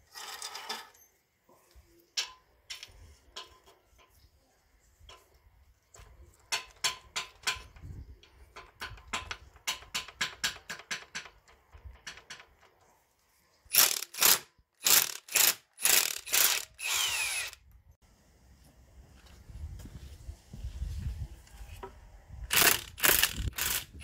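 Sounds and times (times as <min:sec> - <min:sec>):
socket ratchet clicking: 0:13.7 - 0:17.6.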